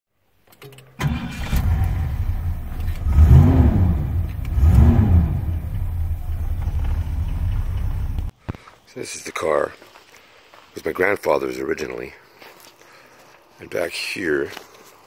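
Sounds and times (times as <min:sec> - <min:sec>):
car engine starting and revving: 0:01.0 - 0:08.3.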